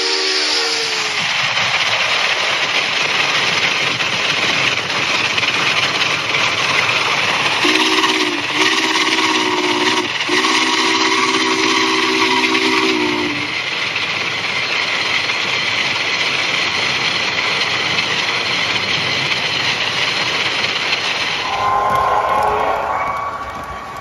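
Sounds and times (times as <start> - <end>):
steam locomotive chime whistle: 0.0 - 1.2, 7.6 - 13.5, 21.4 - 24.0
steady steam hiss: 0.0 - 24.0.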